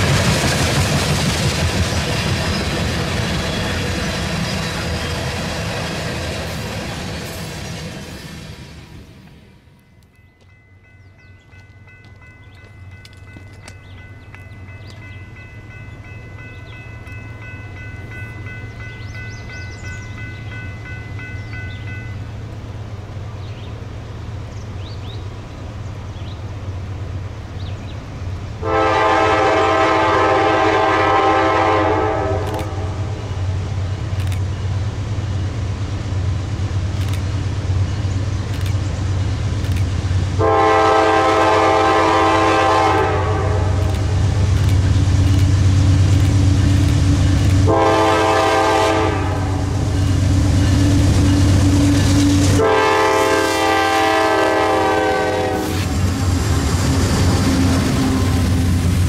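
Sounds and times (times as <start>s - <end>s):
diesel locomotive engines rumbling: 0.0s - 59.0s
locomotive air horn: 28.6s - 33.2s, 40.4s - 44.1s, 47.6s - 49.9s, 52.4s - 55.9s.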